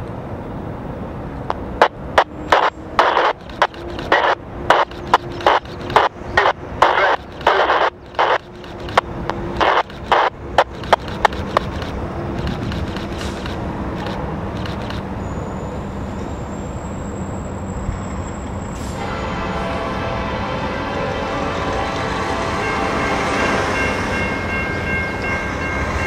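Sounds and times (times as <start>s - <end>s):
train rumble: 0.0s - 26.0s
sharp clicks: 1.5s - 15.1s
locomotive horn: 18.8s - 24.1s.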